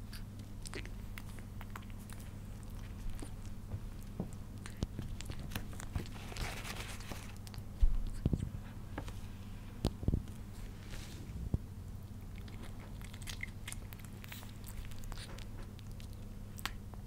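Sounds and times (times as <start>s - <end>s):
kitten licking and chewing food: 0.0s - 17.0s
papery rustle: 5.3s - 7.5s.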